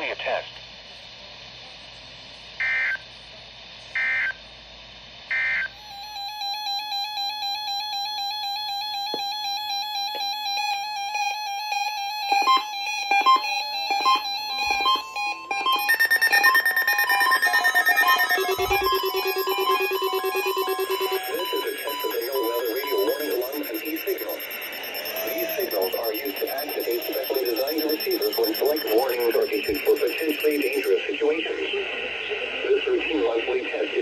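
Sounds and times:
digital data bursts: 5.3 - 31.4
alert radio beeps and tones: 5.4 - 31.3.

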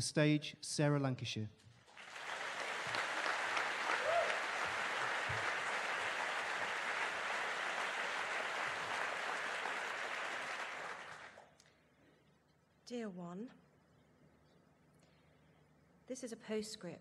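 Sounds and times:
audience applauding: 1.9 - 11.5.

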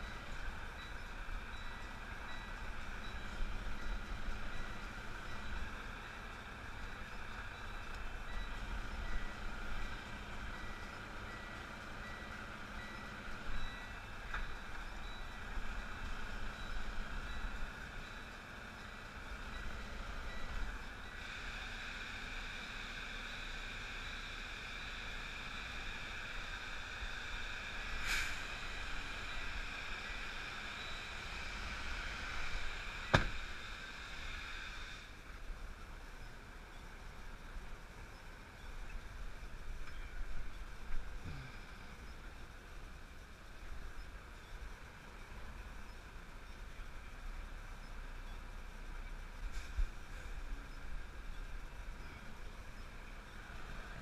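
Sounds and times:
truck back-up alarm beeping: 0.0 - 34.4, 49.0 - 54.0
diesel engine running: 0.0 - 54.0
sharp knock: 33.1 - 33.4.

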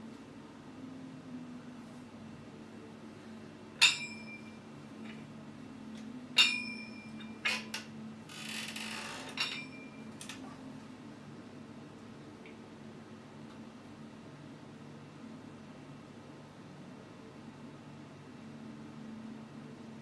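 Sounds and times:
low steady hum: 0.0 - 20.0
iron plates clinking: 3.8 - 5.2, 6.4 - 7.8, 9.3 - 10.0.

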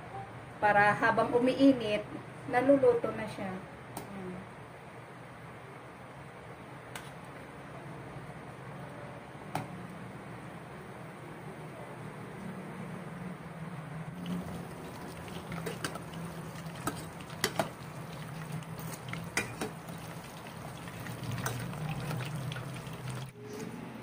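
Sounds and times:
chicken sizzling in hot oil: 14.2 - 23.4.

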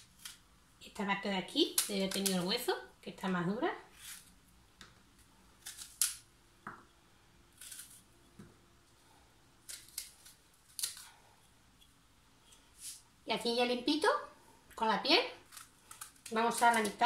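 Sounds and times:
knife cutting raw fruit: 0.0 - 0.5, 3.9 - 6.3, 9.6 - 11.2, 15.4 - 17.0.

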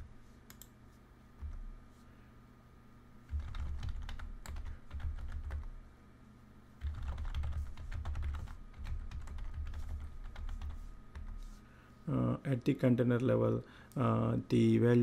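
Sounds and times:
typing on computer keyboard: 3.3 - 5.7, 6.8 - 11.4.

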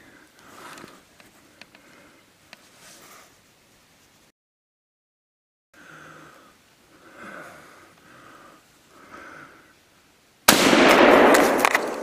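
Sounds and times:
faint breathing: 0.0 - 3.4, 5.8 - 9.8
rifle shot with echo: 10.5 - 12.0.

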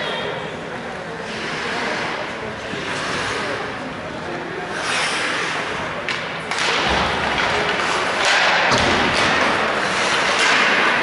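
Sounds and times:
skates hissing on ice: 1.3 - 4.0, 4.7 - 6.0
hockey sticks and puck clacking: 1.3 - 11.0.

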